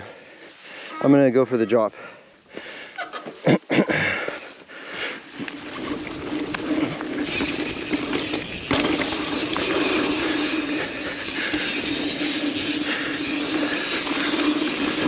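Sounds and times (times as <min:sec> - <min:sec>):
bike tyres rolling and rattling: 0:03.1 - 0:15.0.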